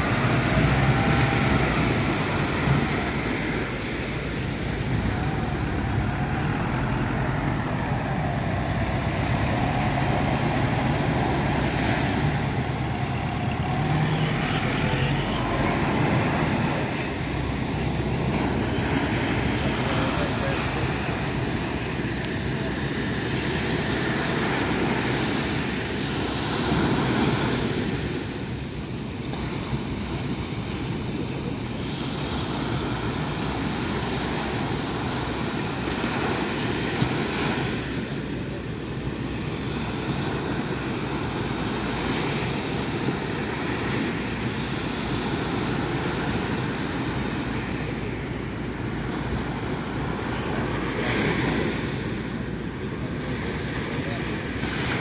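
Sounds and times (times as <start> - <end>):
surf breaking: 0.0 - 28.4
boat outboard motors droning: 0.0 - 55.0.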